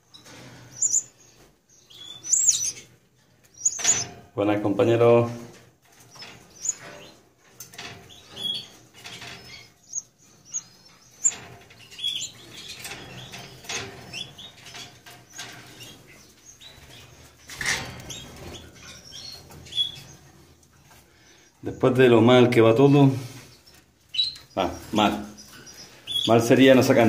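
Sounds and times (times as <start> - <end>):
birds fluttering in cages: 0.0 - 27.0
high bird chirps: 0.7 - 2.9, 3.5 - 4.1, 6.0 - 7.2, 8.1 - 17.3, 18.0 - 20.3, 23.5 - 26.5.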